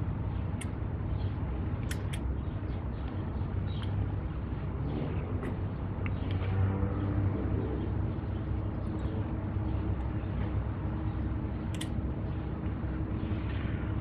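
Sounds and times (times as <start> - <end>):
low hum: 0.0 - 14.0
metallic clip click: 1.8 - 2.2, 11.7 - 12.0.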